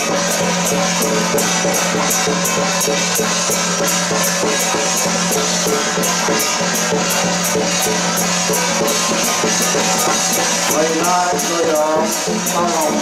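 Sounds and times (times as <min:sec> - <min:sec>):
drum and cymbal procession music: 0:00.0 - 0:13.0
wavering melody: 0:00.0 - 0:13.0.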